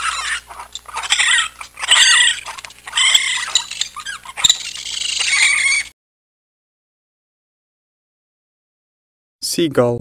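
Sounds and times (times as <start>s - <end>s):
raccoon chittering: 0.0s - 5.9s.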